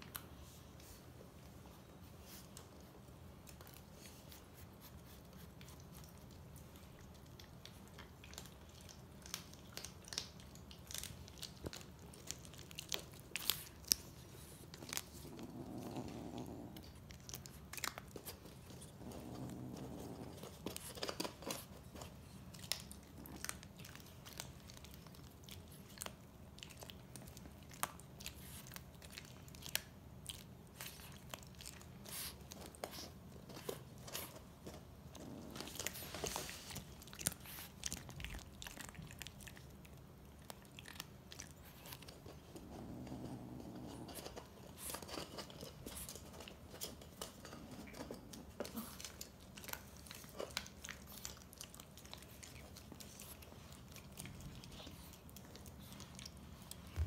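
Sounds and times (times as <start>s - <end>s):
kittens licking wet clicks: 5.2s - 15.7s.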